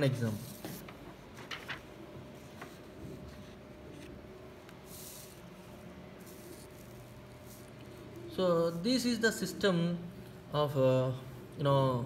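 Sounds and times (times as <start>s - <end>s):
paper sheets rustling: 0.2s - 4.2s.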